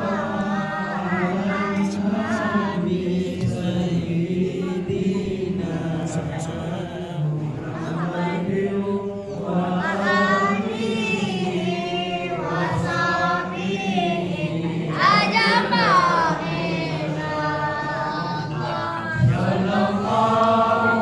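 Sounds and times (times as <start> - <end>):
congregation chanting: 0.0 - 21.0.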